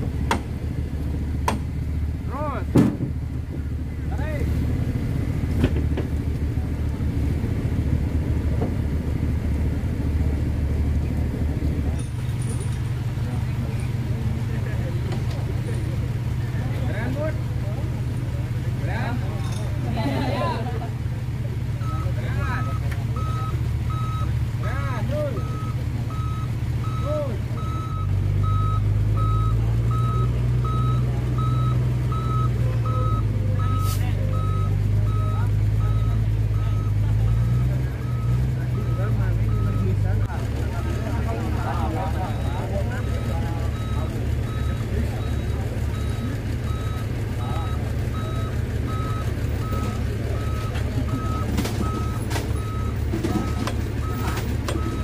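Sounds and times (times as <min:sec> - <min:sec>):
heavy truck engine under load: 0:00.0 - 0:55.0
reversing alarm beeping: 0:21.8 - 0:24.3, 0:25.2 - 0:40.0, 0:40.8 - 0:55.0.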